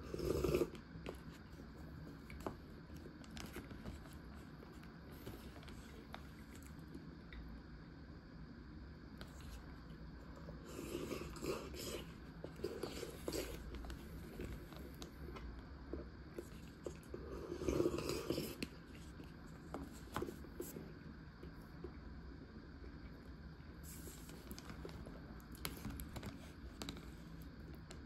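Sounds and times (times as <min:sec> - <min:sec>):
person chewing and sipping: 0:00.0 - 0:07.0, 0:10.3 - 0:21.5.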